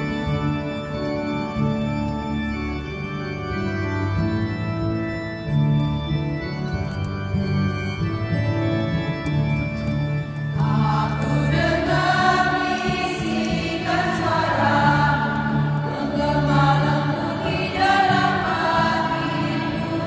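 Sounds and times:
organ accompaniment: 0.0 - 20.0
women's choir singing a hymn: 10.6 - 20.0.

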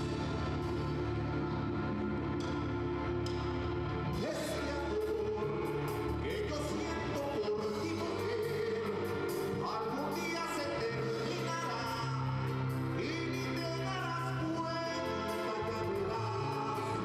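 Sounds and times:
live band music: 0.0 - 17.0
person singing: 4.1 - 17.0.

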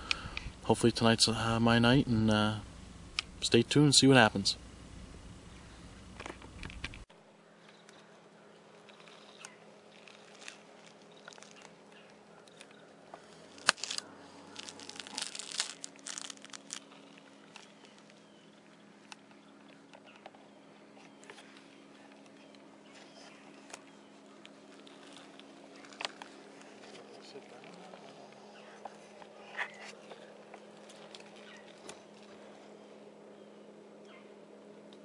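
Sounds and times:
loud low hum: 0.0 - 7.0
low steady hum: 0.0 - 35.0
fabric crinkling and rustling: 8.9 - 18.3, 22.9 - 28.2.

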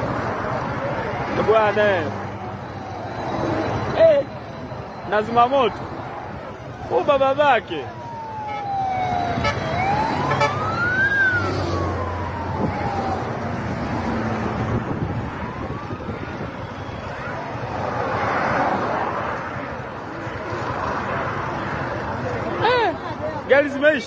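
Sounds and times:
vehicles passing at speed: 0.0 - 24.0
siren wailing: 2.4 - 18.1.

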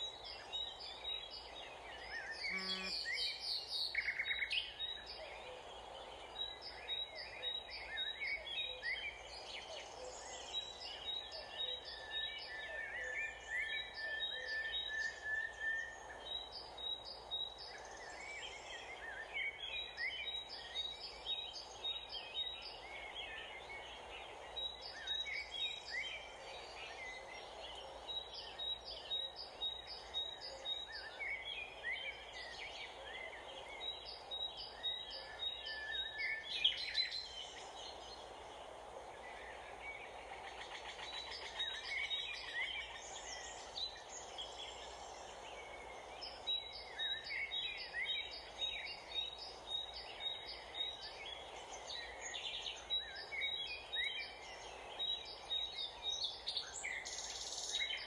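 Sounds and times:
birds chirping and singing: 0.0 - 38.4.

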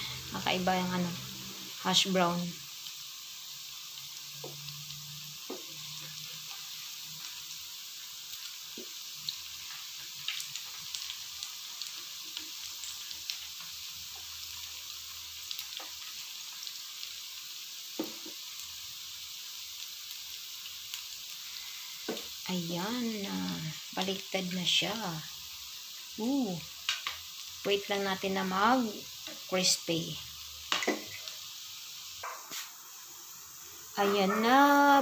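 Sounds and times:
oil sizzling in a pan: 0.0 - 35.0
utensils clicking on pan: 26.8 - 27.3, 30.7 - 31.4, 32.2 - 32.8.

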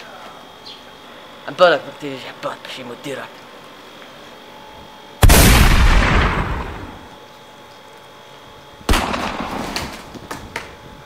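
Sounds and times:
shotgun blasts with echo: 5.2 - 7.0.

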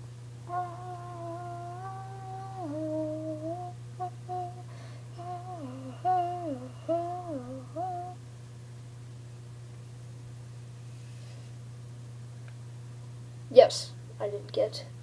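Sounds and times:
person humming a wordless tune: 0.4 - 8.2.

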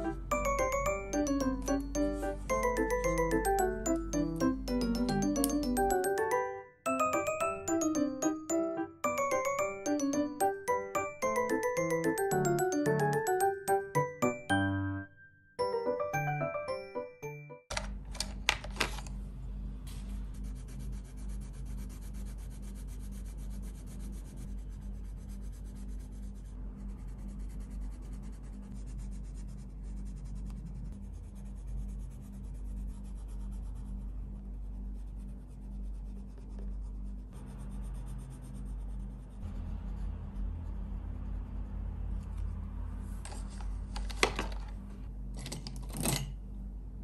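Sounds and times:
steady low hum: 19.1 - 44.0
pencil scratching on paper: 20.4 - 34.1, 34.7 - 40.2.

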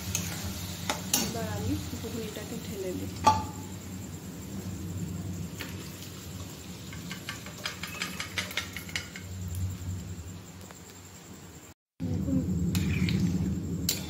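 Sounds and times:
pot knocking against pan: 3.2 - 3.7, 6.9 - 9.2.

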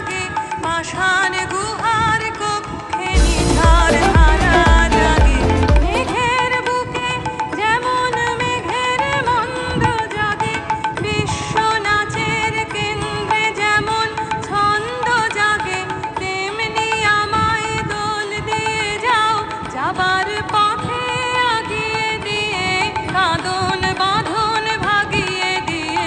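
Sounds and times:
light percussion: 0.0 - 26.0
melodic instrument gliding notes: 3.2 - 6.4.

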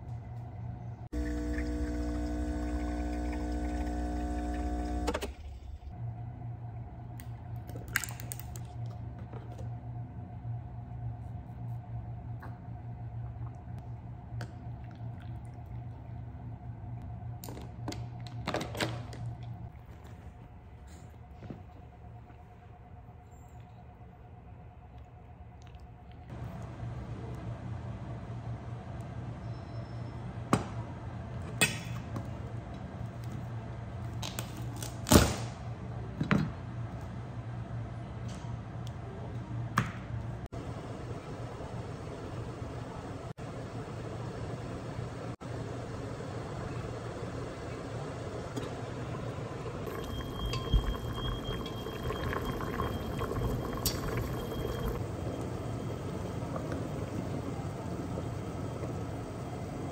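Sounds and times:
steady low hum: 0.0 - 18.2, 35.6 - 59.9
faint high whine: 49.8 - 59.9
pot bubbling with crackling pops: 49.9 - 55.0.

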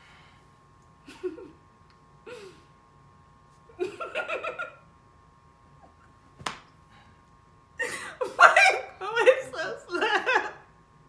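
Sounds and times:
quiet laughter and giggling: 1.0 - 1.7, 3.7 - 4.9, 7.8 - 10.7.

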